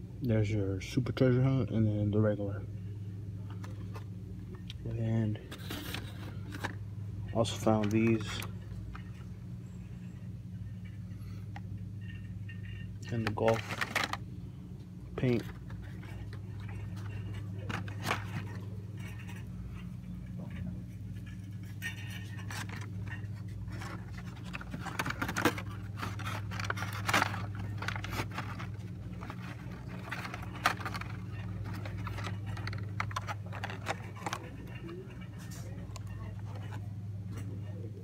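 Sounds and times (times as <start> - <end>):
steady low hum: 0.0 - 38.0
plastic packaging scraping and rustling: 5.4 - 9.3, 12.0 - 14.2, 15.2 - 37.4.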